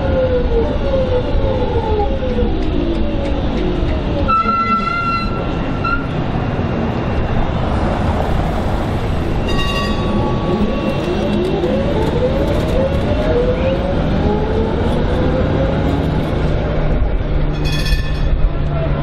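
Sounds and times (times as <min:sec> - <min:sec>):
street noise: 0:00.0 - 0:19.0
tram running past: 0:00.0 - 0:19.0
tram bell ring: 0:09.4 - 0:10.8.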